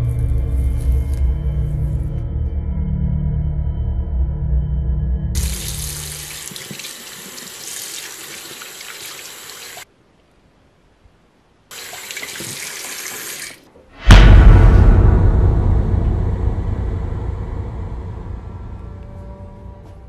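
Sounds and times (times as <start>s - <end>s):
tap water running into sink: 5.4s - 9.8s, 11.7s - 13.6s
loud low boom: 14.0s - 19.9s.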